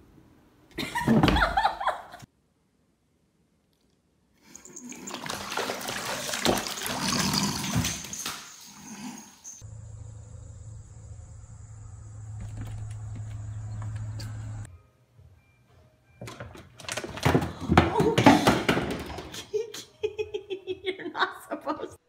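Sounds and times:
cat splashing in water: 0:04.9 - 0:07.8
steady low hum: 0:09.6 - 0:14.7.

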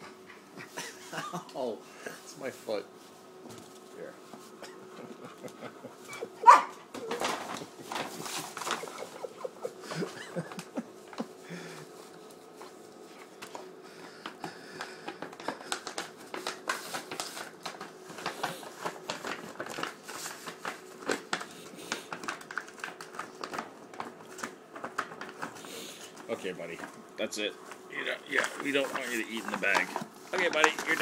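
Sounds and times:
paper bag rustling and crinkling: 0:07.0 - 0:10.8, 0:14.7 - 0:31.0.

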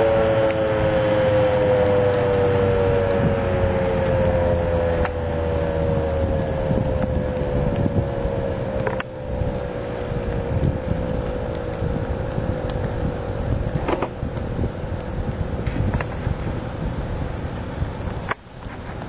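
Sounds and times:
two-tone warning siren winding down: 0:00.0 - 0:12.0.

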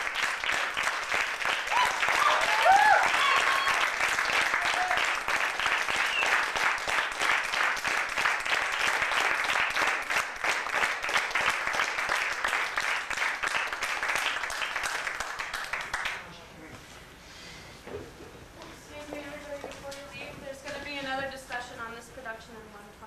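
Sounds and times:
audience applauding: 0:00.0 - 0:16.3.

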